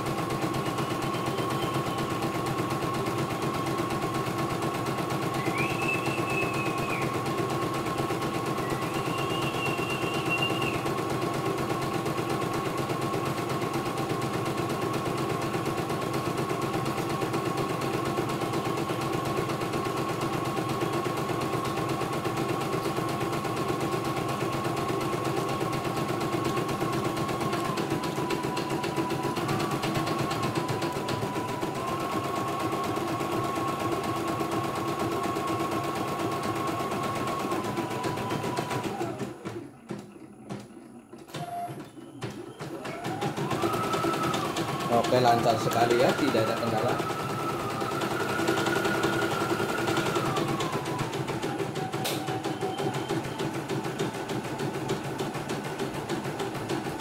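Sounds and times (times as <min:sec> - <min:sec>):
motor hum: 0:00.0 - 0:13.3, 0:36.7 - 0:53.0.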